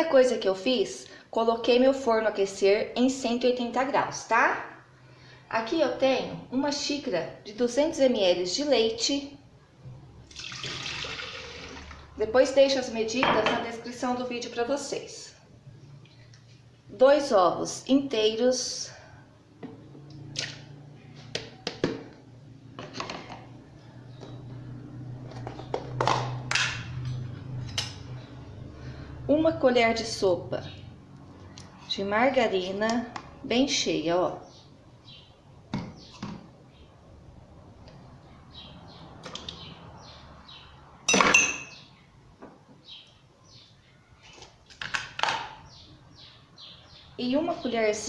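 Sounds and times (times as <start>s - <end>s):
kitchenware taps and knocks: 13.2s - 13.7s, 41.1s - 41.8s
metal spoon clinking on blender jar: 41.1s - 41.8s.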